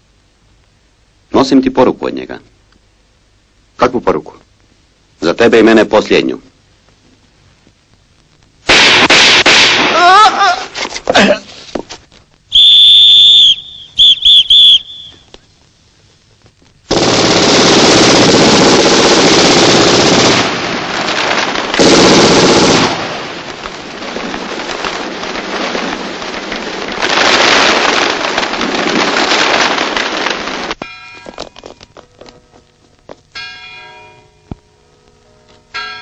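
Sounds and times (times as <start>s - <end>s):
machine-gun fire: 8.7s - 10.0s, 16.9s - 30.8s
shrill whistle blasts: 12.5s - 15.3s.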